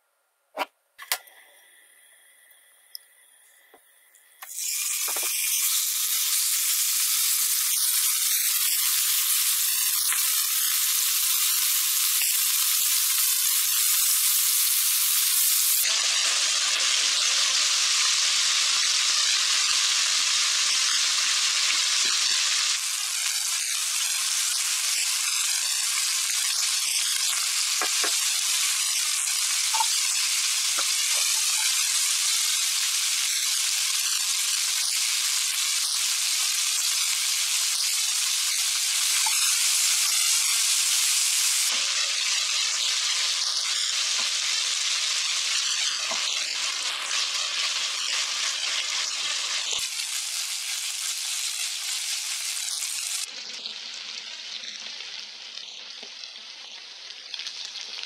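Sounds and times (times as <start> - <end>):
chicken sizzling in oil: 4.5 - 58.0.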